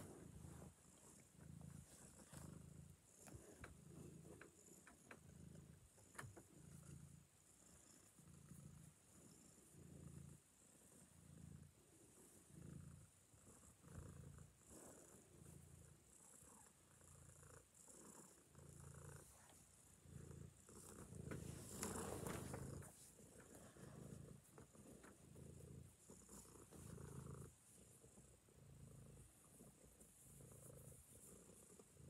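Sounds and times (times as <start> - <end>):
cat purring: 0.0 - 32.0.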